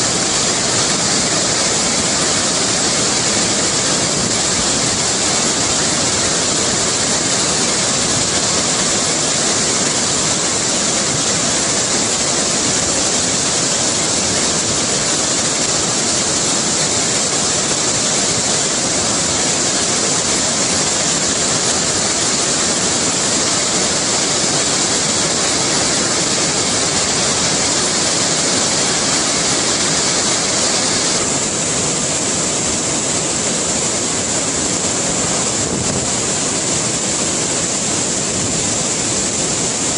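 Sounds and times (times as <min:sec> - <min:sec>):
river rushing over rocks: 0:00.0 - 0:39.9.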